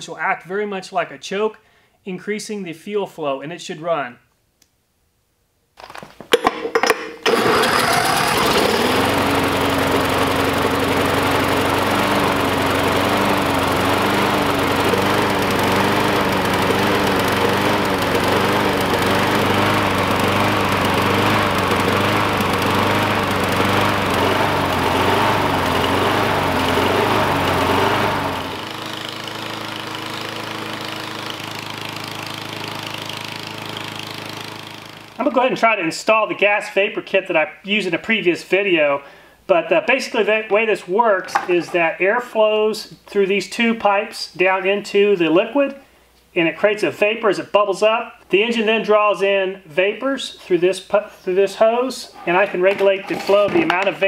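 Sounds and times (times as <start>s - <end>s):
lawn mower engine running: 7.0s - 35.4s, 41.2s - 41.8s, 52.0s - 54.0s
drill spinning flywheel: 7.2s - 35.2s, 52.0s - 54.0s.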